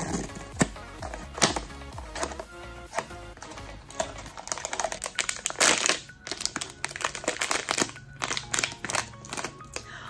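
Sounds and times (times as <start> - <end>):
foil bag crinkling: 3.4 - 9.8.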